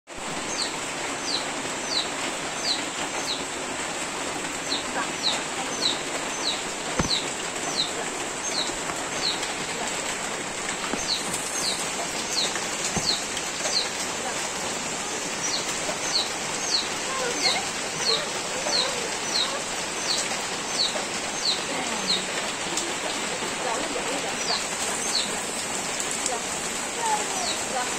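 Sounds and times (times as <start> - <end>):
heavy rain pouring: 0.1 - 27.9
small bird chirping: 0.4 - 3.5, 4.6 - 9.6, 10.8 - 14.0, 15.4 - 22.2.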